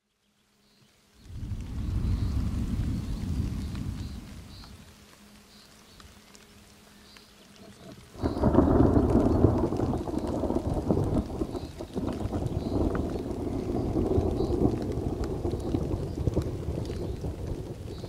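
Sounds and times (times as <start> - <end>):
rain: 0.0 - 18.0
thunder rumbling: 1.2 - 4.9, 8.1 - 18.0.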